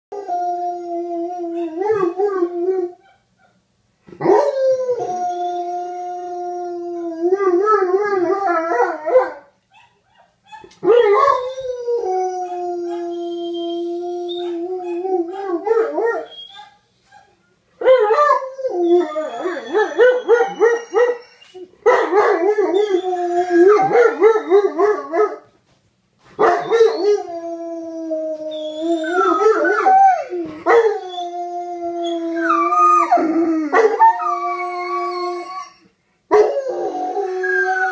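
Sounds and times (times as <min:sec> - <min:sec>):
dog howling steady note: 0:10.8 - 0:16.4, 0:17.9 - 0:21.4, 0:26.6 - 0:35.8, 0:36.4 - 0:37.9
dog howling wavering voice: 0:11.0 - 0:16.3, 0:18.4 - 0:21.0.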